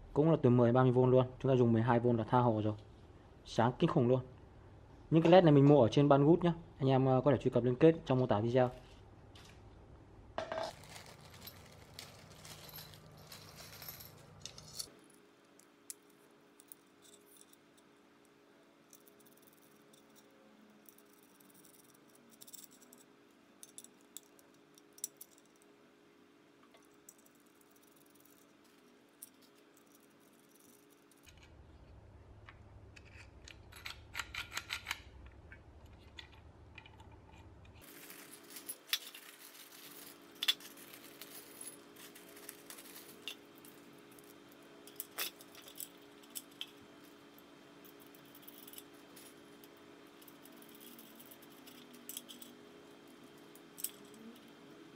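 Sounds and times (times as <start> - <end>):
small metal parts clinking: 10.4 - 17.9, 18.8 - 25.7, 26.8 - 31.4, 37.8 - 54.6.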